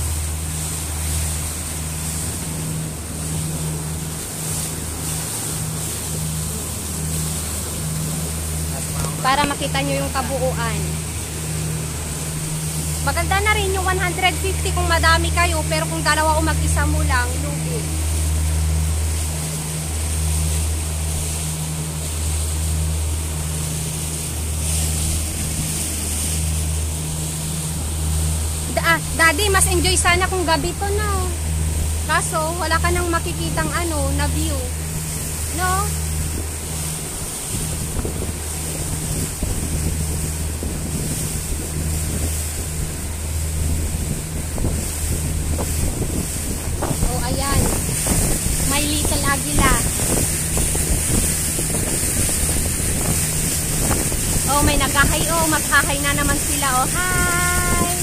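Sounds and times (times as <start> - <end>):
speedboat engine droning: 0.0 - 58.0
water rushing past hull: 0.0 - 58.0
wind buffeting microphone: 22.0 - 58.0.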